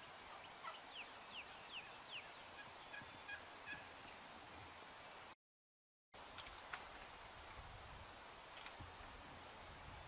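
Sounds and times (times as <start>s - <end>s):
wild turkeys calling: 0.3s - 4.0s.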